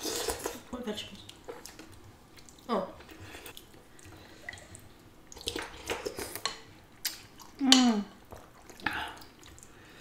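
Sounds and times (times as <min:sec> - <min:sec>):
noodles slurped and chewed: 0:01.3 - 0:07.6.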